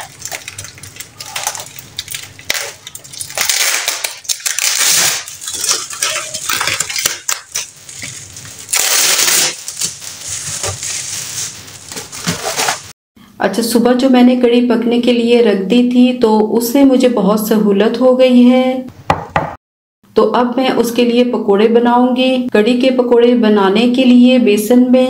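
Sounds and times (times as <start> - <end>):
plastic bags crinkling: 0.0 - 12.9.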